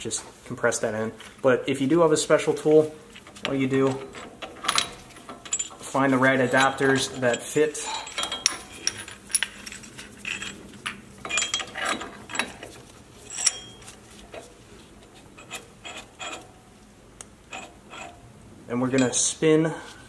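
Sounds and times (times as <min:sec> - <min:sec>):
metal tool clicks and clinks: 0:06.5 - 0:12.5, 0:13.3 - 0:13.8, 0:18.9 - 0:19.3.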